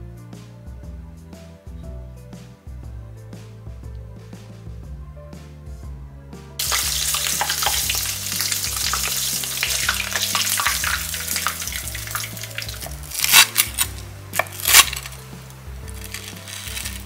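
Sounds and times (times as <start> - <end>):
food deep-frying in oil: 6.6 - 17.0
knife crunching through crust: 10.5 - 17.0.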